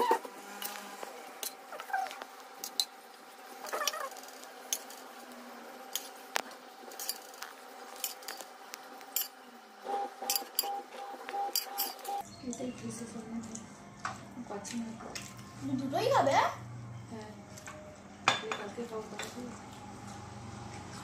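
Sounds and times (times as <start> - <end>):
spoon clinking against ceramic bowls: 11.5 - 12.1, 18.3 - 19.4.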